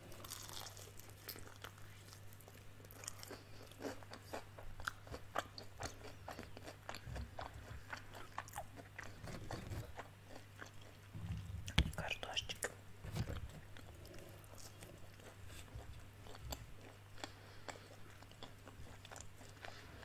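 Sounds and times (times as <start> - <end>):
crunching fried chicken: 0.0 - 12.1
low hum: 11.1 - 12.3.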